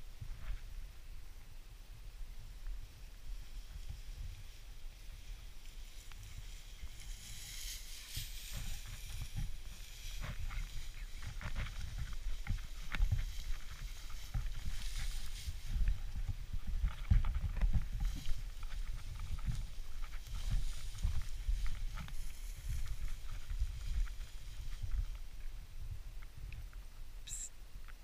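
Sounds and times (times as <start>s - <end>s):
dry grass swishing: 3.5s - 25.3s.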